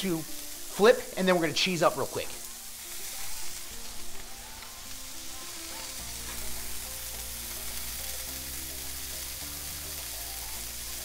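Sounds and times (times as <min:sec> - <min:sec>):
burger patties sizzling on griddle: 0:00.0 - 0:11.0
background music with bass: 0:05.6 - 0:11.0.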